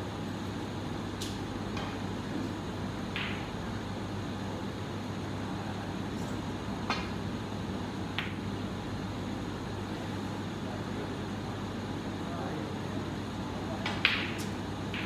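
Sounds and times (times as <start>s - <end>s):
ventilation hum: 0.0s - 15.0s
cue striking snooker ball: 3.1s - 3.5s, 8.1s - 8.4s, 13.8s - 15.0s
snooker balls clicking together: 13.8s - 15.0s.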